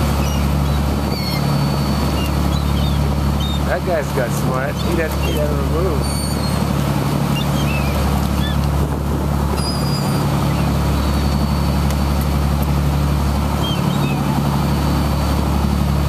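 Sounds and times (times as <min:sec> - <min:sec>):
boat engine running: 0:00.0 - 0:16.0
rush of boat wake: 0:00.0 - 0:16.0
faint gull calls: 0:00.1 - 0:03.8, 0:05.2 - 0:08.6, 0:09.5 - 0:11.8, 0:13.6 - 0:14.8.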